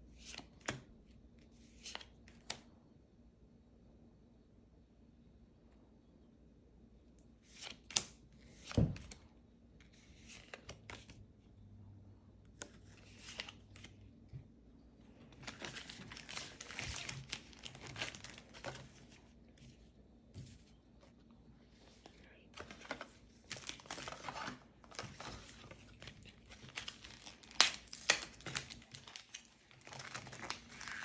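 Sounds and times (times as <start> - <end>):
foil wrapper crinkling and tearing: 15.4 - 18.9, 23.5 - 31.0.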